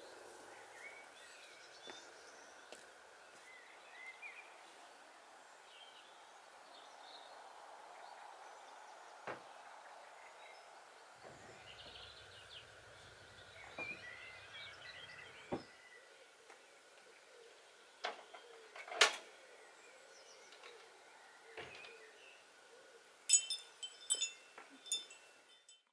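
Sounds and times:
birds chirping: 0.0s - 25.9s
chimes tinkling: 23.3s - 25.9s.

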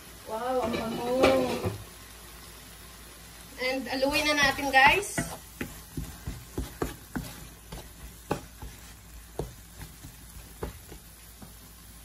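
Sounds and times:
faint sizzle: 0.0s - 12.0s
wooden spatula scraping pan: 3.9s - 11.7s.

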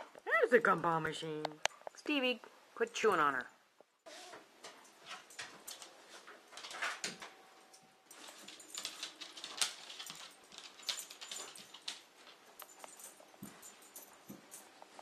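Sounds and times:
dog claws clicking on tile: 5.0s - 14.7s.

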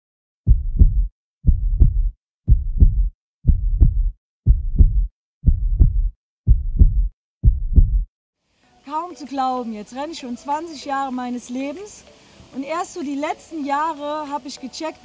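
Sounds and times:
heartbeat: 0.5s - 8.1s.

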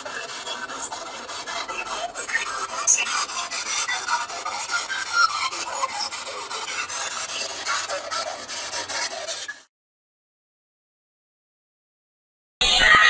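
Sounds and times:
scratchy rubbing and rustling: 0.0s - 9.7s.

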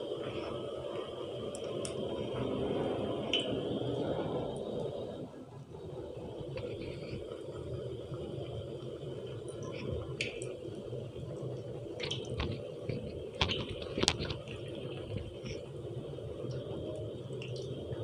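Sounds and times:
oil crackles and pops: 0.0s - 5.0s, 6.4s - 18.0s
hot oil sizzling and bubbling: 0.0s - 5.1s, 6.2s - 18.0s.

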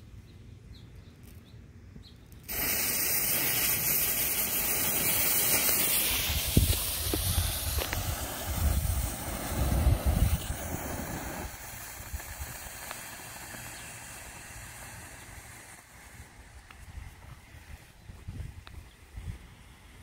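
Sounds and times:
smoke bomb hissing: 2.4s - 17.9s.

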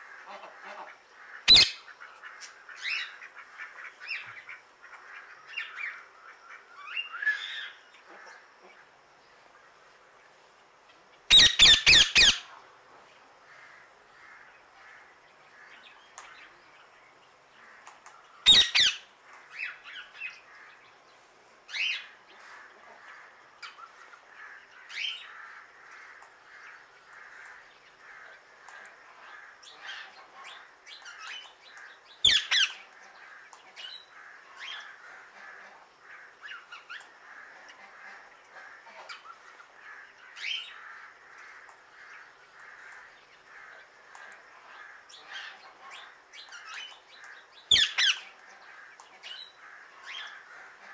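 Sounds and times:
birds chirping: 0.0s - 9.7s, 13.6s - 50.9s
parakeet squawking: 1.5s - 1.8s, 11.3s - 12.4s, 18.5s - 19.0s.

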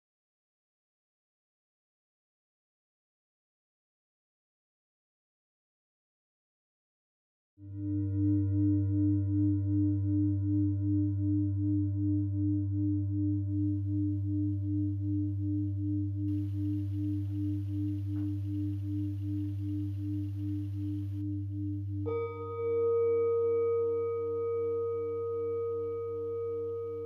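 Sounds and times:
singing bowl ringing: 7.6s - 27.0s
faint hiss: 16.3s - 21.3s.

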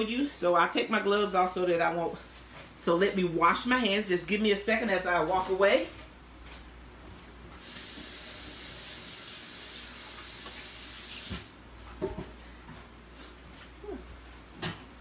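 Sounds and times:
tap running: 10.1s - 12.2s.

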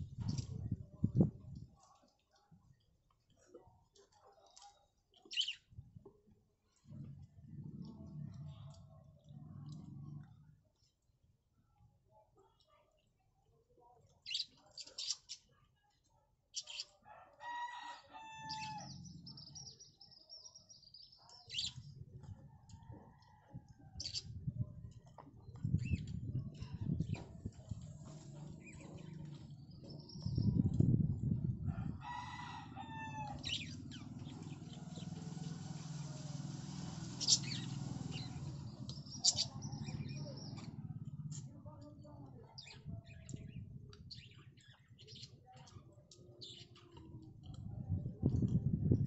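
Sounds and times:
rooster crowing: 17.2s - 18.9s, 31.8s - 33.5s.

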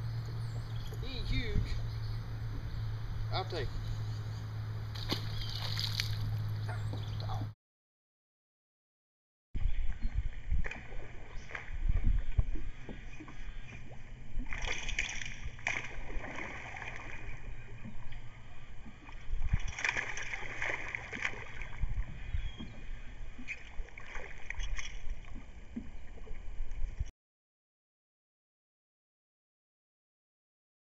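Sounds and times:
fish splashing at water surface: 4.9s - 6.5s, 19.5s - 21.8s.

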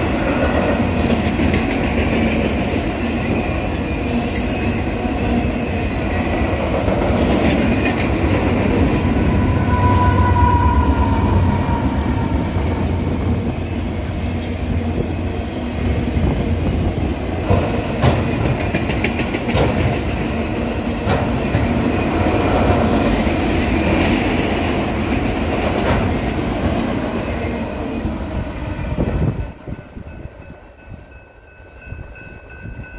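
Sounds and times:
freight train rumbling and rattling: 0.0s - 32.9s
train wheel clicks: 17.4s - 20.3s.

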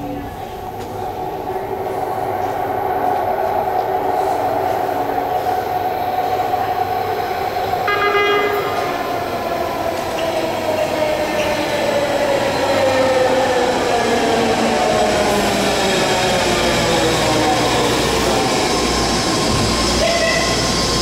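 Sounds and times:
train horn toot: 7.8s - 9.1s, 20.0s - 20.6s.

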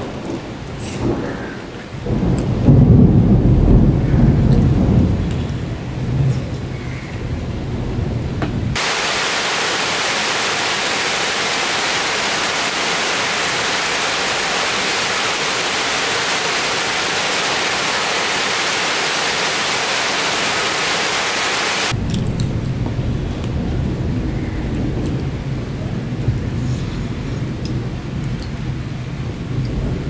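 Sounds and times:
rain falling on leafy trees: 0.0s - 30.0s
low rumbling noise: 7.3s - 30.0s.

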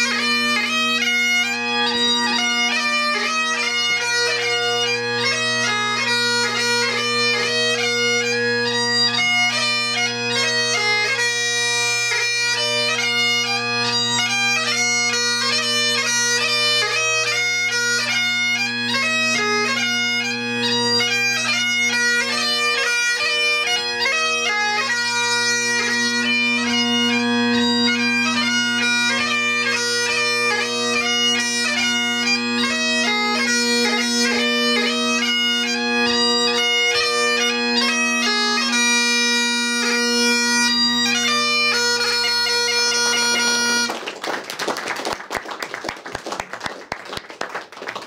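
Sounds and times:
bagpipe playing a march: 0.0s - 44.2s
audience applause: 43.8s - 48.0s.

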